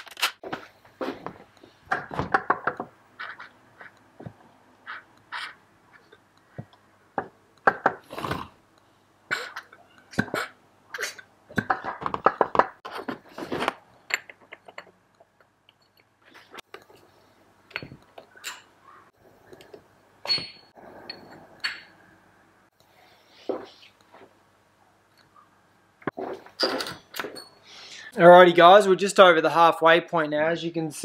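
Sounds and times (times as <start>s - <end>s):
metal tools clinking on workbench: 20.2s - 21.9s, 26.6s - 27.6s.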